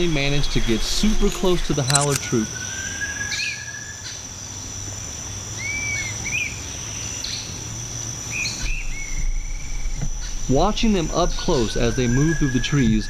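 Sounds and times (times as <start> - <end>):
insects droning: 0.0 - 13.0
bird whistles and chirps: 8.3 - 10.4.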